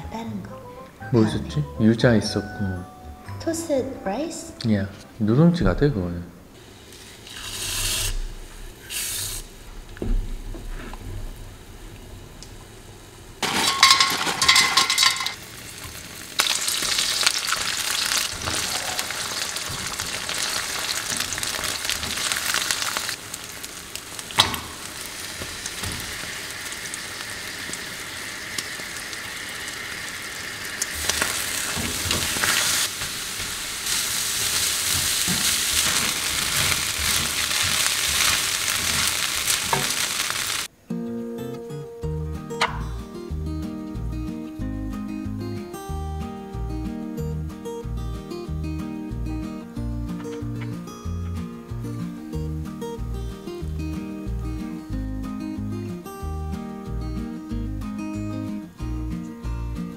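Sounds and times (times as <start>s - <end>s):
food sizzling in hot oil: 6.6s - 9.6s, 13.4s - 40.7s
spatula scraping a wok: 6.9s - 9.4s.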